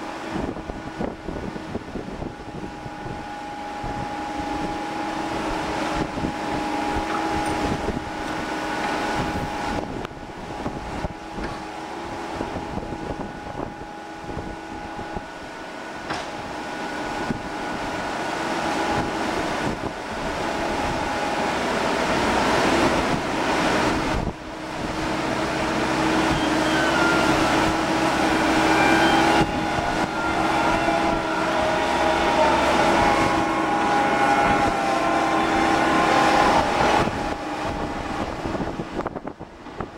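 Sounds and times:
crane machinery drone: 0.0 - 39.9
wavering whine: 0.0 - 39.9
wind buffeting microphone: 0.0 - 39.9.

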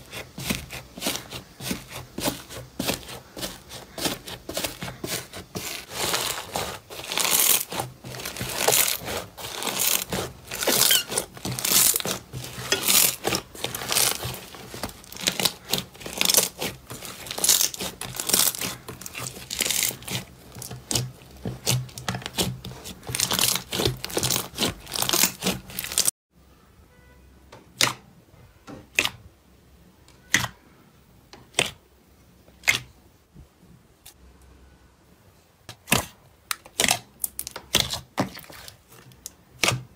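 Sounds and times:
crusted slime crackling and crunching: 0.0 - 26.1, 35.7 - 39.9.

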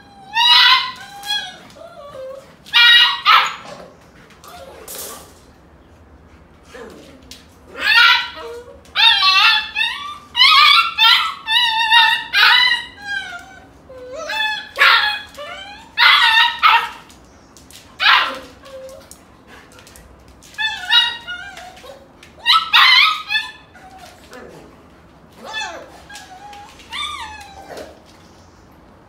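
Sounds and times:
puppy yelping and whimpering: 0.0 - 3.8, 7.7 - 17.1, 20.6 - 24.4, 25.4 - 28.0.

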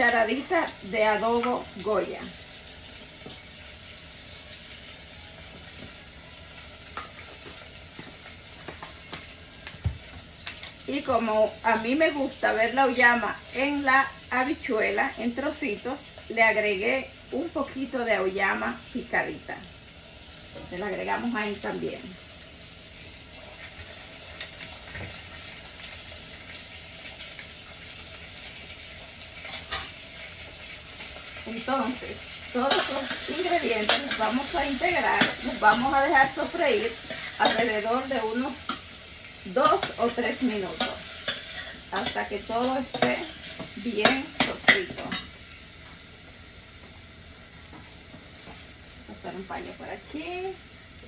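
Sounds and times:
vegetables sizzling in hot oil: 0.0 - 51.0.

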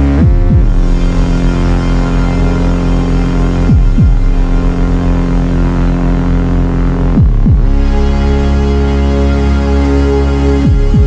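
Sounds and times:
low throbbing pulse: 0.0 - 11.0
synthesizer drone: 0.0 - 11.0
falling pitch sweeps: 0.2 - 6.8.

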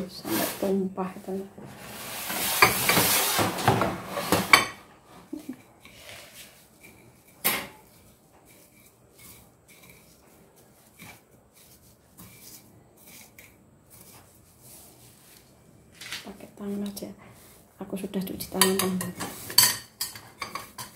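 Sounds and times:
metal utensil scraping on plate: 1.8 - 10.2, 18.5 - 20.9
gritty scrapes through crumbs: 5.8 - 16.3.

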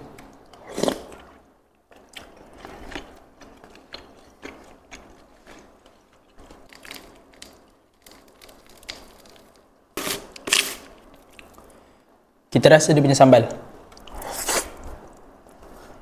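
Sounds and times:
close-up chewing crunches: 0.6 - 9.5.

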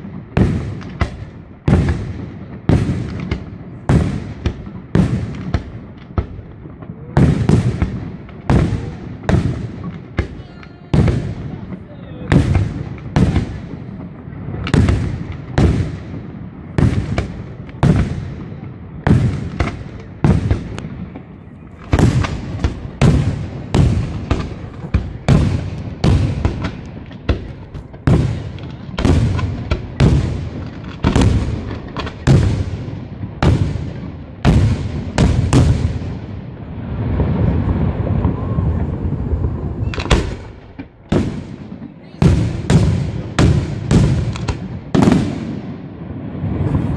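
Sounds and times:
firework shells bursting: 19.2 - 32.7, 37.6 - 45.4.

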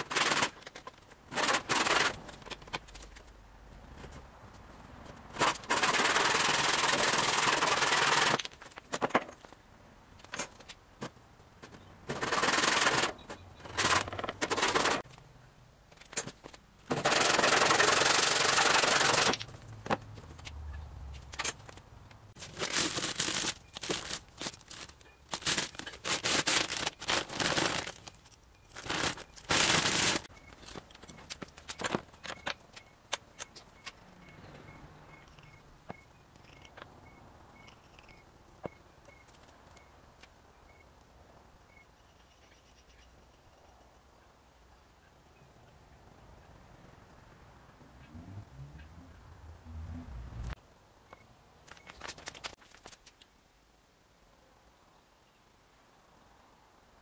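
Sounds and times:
handsaw cutting wood: 12.1 - 13.1.

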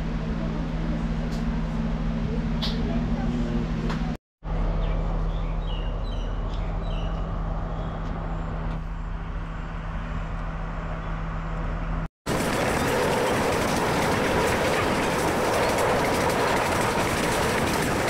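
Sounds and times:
bird chirps: 4.8 - 8.5
train moving along track: 7.1 - 18.0
train engine idling: 12.3 - 18.0.

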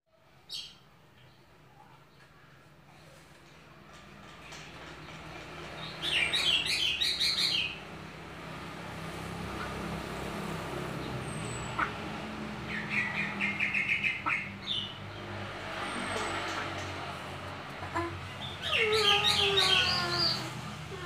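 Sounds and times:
bird chattering song: 5.8 - 7.8, 12.6 - 15.0, 18.3 - 20.6.

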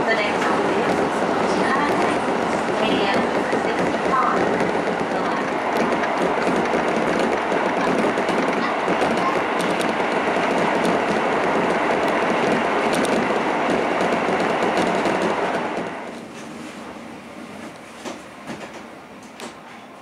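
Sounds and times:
train rumbling along rails: 0.0 - 20.0.

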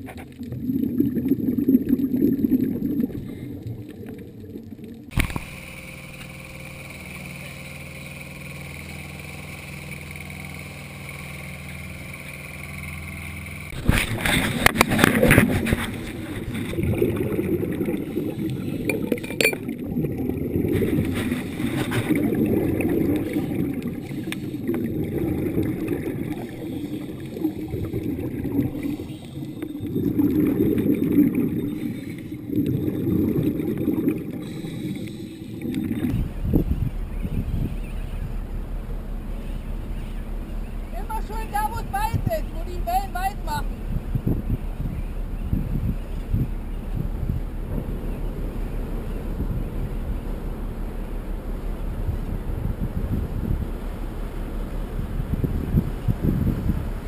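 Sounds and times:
scuba regulator bubbling: 0.0 - 38.5
muffled underwater sound: 0.0 - 57.0
steady hum: 0.0 - 57.0.

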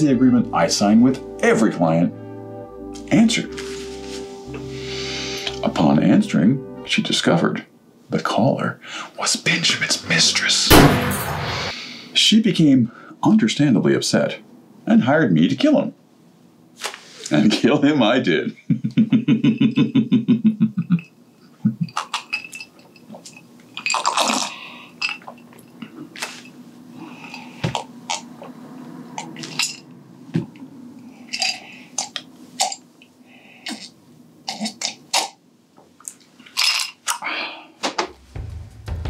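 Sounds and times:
man laughing: 18.5 - 22.0
ice cubes clinking in glass: 21.9 - 25.4.

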